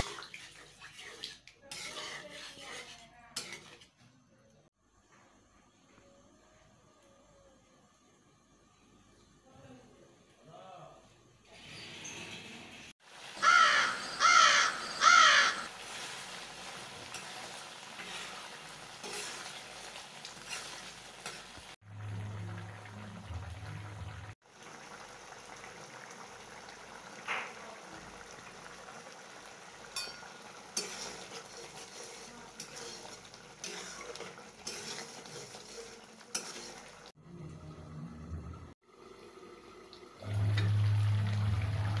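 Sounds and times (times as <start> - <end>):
curry bubbling and sizzling: 0.0 - 4.0, 12.8 - 13.4, 15.6 - 37.2, 38.3 - 42.0
bird calling: 13.4 - 15.7.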